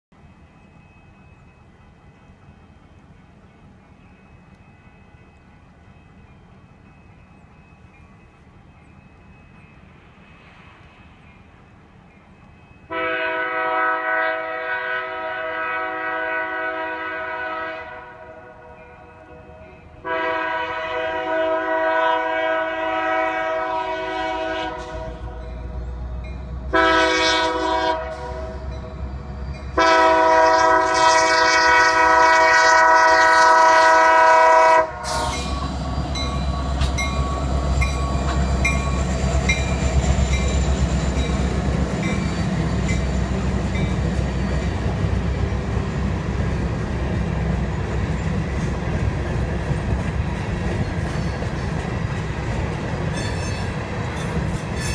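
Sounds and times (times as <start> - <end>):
diesel locomotive engines passing: 0.1 - 54.9
locomotive air horn blasts: 12.9 - 25.4, 26.7 - 28.8, 29.6 - 35.8
train wheels clicking over rail joints: 35.0 - 54.9.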